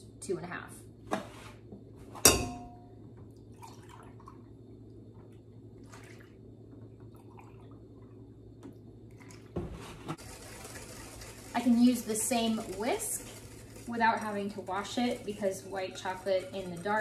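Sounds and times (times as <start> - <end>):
glass clink: 2.2 - 2.9
milk pouring into a cup: 3.5 - 4.5.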